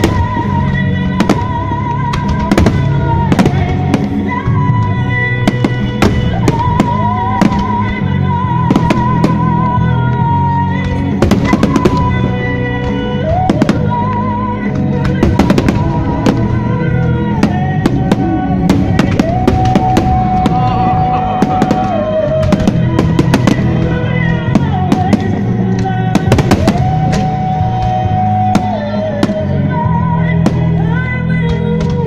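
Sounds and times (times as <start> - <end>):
fireworks bangs and crackles: 0.0 - 32.0
loud music with drums: 2.1 - 4.4, 14.7 - 16.8, 17.4 - 29.6.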